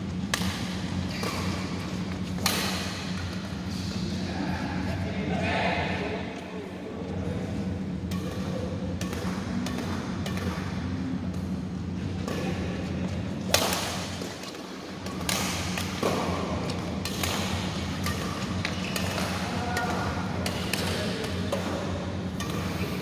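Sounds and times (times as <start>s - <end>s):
steady low hum: 0.0s - 23.0s
rackets hitting shuttlecock: 0.2s - 3.6s, 8.0s - 11.6s, 12.2s - 23.0s.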